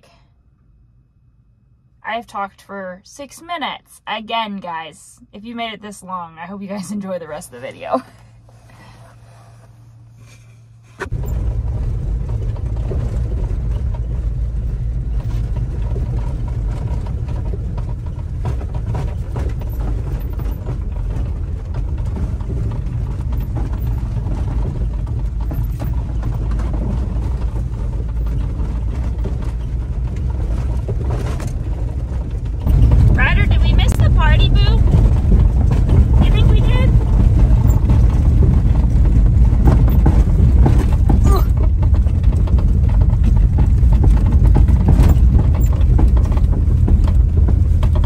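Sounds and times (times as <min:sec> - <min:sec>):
road noise rumble: 0:00.0 - 0:48.0
truck engine running: 0:04.7 - 0:48.0
cab rattling over bumps: 0:11.0 - 0:48.0.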